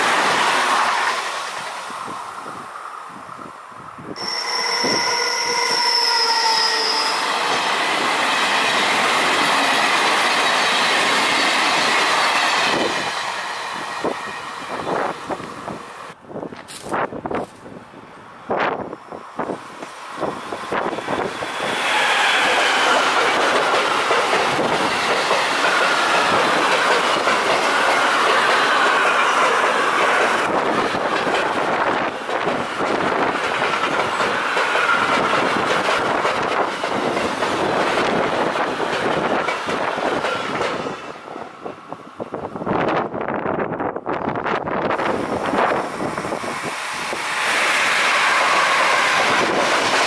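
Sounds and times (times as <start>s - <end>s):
wind gusts on microphone: 0.0s - 5.2s, 7.5s - 50.0s
freight train rolling roar: 0.0s - 50.0s
wheel squeal: 4.2s - 7.5s.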